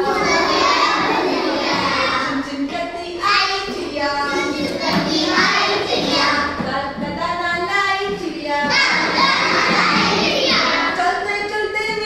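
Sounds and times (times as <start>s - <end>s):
children shouting: 0.0s - 2.4s, 8.7s - 10.9s
children singing in unison: 0.0s - 11.2s.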